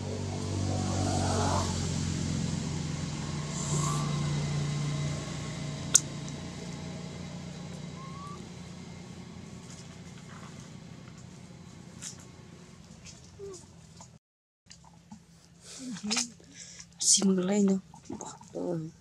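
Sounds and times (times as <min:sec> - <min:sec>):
engine drone: 0:00.0 - 0:14.2.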